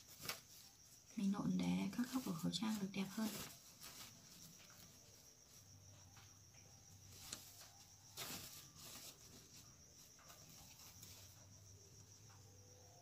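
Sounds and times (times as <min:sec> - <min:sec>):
fabric rustling: 0:00.0 - 0:06.0, 0:06.9 - 0:12.0.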